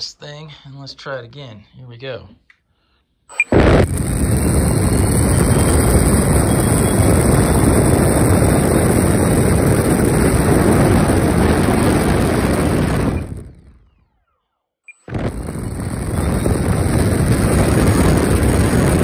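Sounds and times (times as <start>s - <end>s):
electric ducted fan running: 3.3s - 13.9s, 15.1s - 19.0s
loud rush of air: 3.4s - 13.8s, 15.1s - 19.0s.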